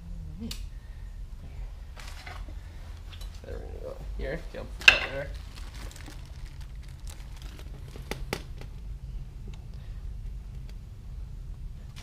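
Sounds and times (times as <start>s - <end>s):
plastic sheeting crinkling: 4.6s - 8.9s.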